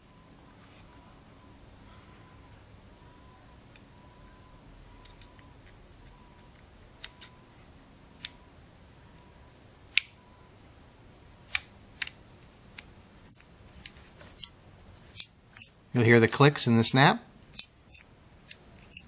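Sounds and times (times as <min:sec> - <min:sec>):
small mechanical clicks: 0:17.6 - 0:19.0.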